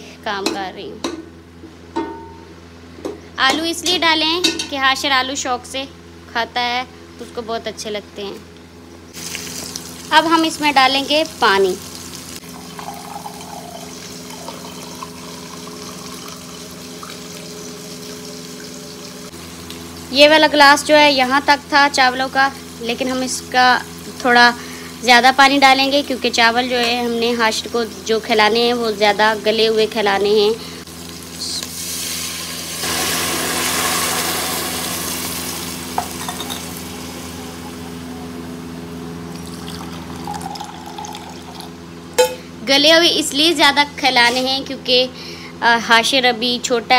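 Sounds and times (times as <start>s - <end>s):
steady bubbling: 12.4s - 19.3s
water pouring into steel tumbler: 12.5s - 19.3s.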